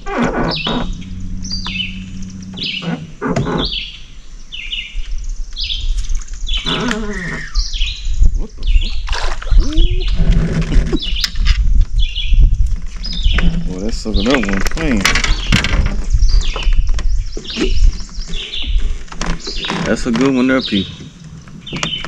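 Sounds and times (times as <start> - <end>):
songbirds chirping: 0.0 - 22.0
wavering lower bird call: 0.4 - 4.7.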